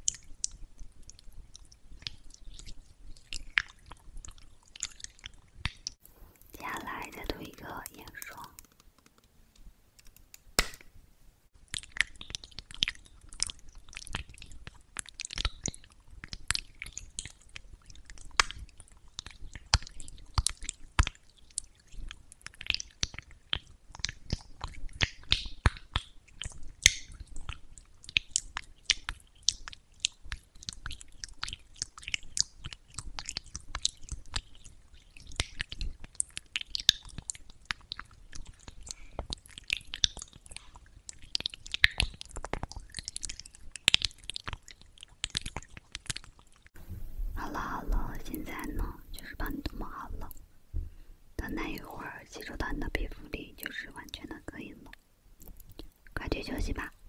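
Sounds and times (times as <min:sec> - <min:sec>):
roller wet sticky clicks: 0:06.0 - 0:10.9.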